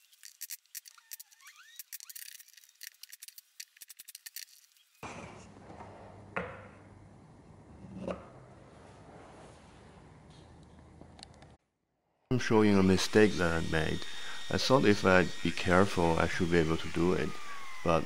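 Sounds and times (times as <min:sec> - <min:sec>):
nail squeaking: 0:00.0 - 0:05.0.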